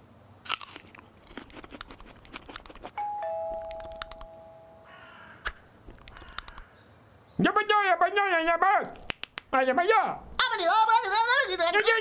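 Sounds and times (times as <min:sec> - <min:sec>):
carrot crunching: 0:00.4 - 0:03.0, 0:05.5 - 0:06.6
two-note falling chime: 0:03.0 - 0:04.9.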